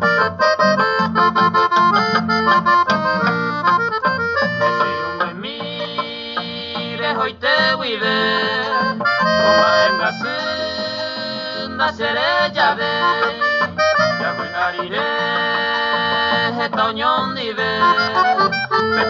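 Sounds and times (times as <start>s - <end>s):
accordion chords: 0.0s - 19.0s
bass: 0.0s - 19.0s
plucked harp: 0.8s - 6.7s.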